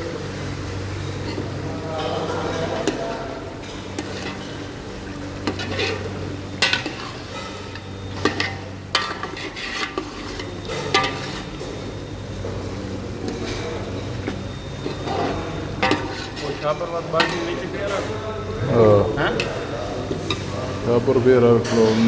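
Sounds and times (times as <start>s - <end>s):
food sizzling: 2.2s - 12.0s, 14.8s - 18.2s
metal spoon scraping a pot: 3.8s - 4.7s, 5.4s - 11.6s, 14.9s - 17.6s.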